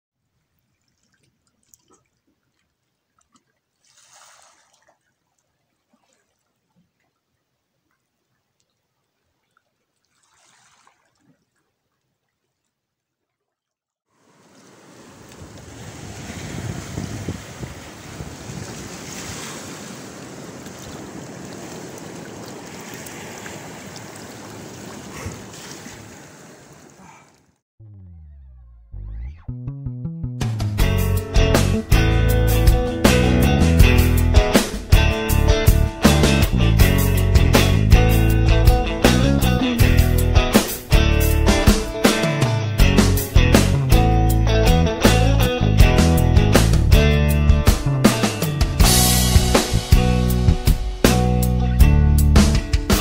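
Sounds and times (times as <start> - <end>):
water dripping: 0.4 - 13.8, 20.1 - 27.0
sea water lapping on rocks: 0.5 - 7.2, 7.8 - 27.6
wind on microphone: 15.3 - 19.7.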